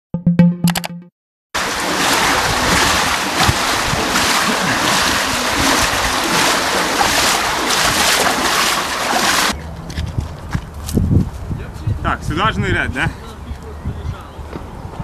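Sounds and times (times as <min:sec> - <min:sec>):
water rushing from culvert pipe: 0:01.6 - 0:09.6.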